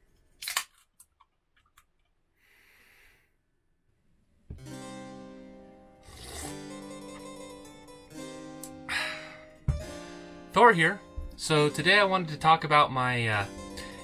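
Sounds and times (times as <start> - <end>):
harpsichord music: 4.6 - 14.0
sip from can: 6.0 - 6.6.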